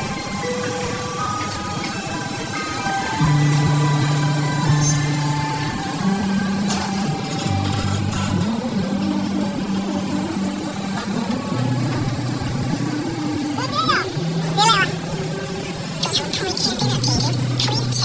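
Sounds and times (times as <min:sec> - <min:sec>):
excavator diesel engine drone: 0:00.0 - 0:18.0.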